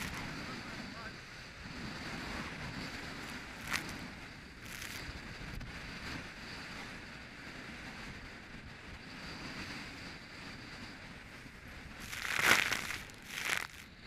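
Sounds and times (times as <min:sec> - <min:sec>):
churning sea water: 0:00.0 - 0:06.6, 0:10.8 - 0:14.0
strong wind rushing: 0:00.0 - 0:08.1.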